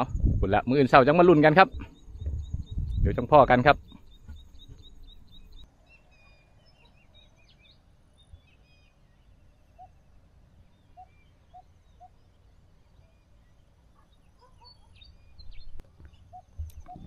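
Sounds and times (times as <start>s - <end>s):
bird chirps: 1.2s - 17.0s.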